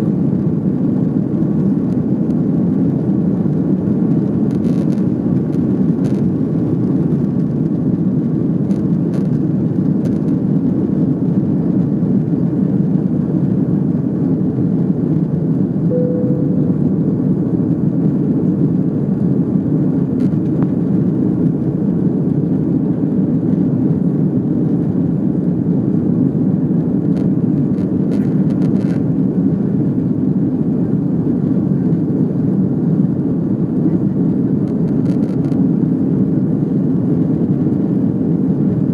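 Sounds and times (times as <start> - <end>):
jet engines rumbling in cabin: 0.0 - 38.9
faint tone: 15.9 - 17.3.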